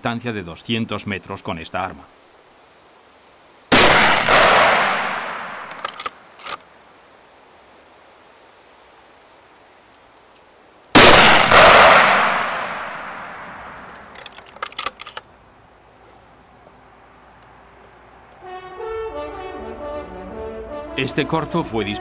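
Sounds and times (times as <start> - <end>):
rifle shot with echo: 3.7 - 6.2, 11.0 - 13.9
metallic clicks: 5.6 - 6.6, 13.7 - 15.3.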